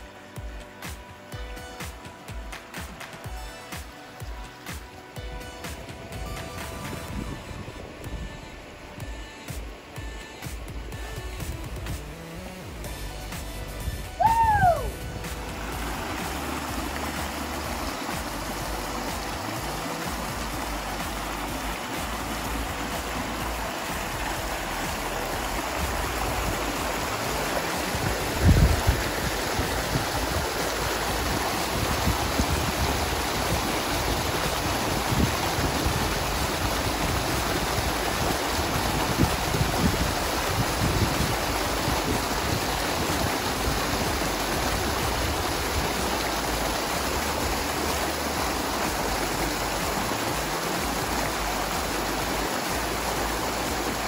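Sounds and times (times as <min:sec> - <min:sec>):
waterfall rushing into a pool: 0:00.0 - 0:54.0.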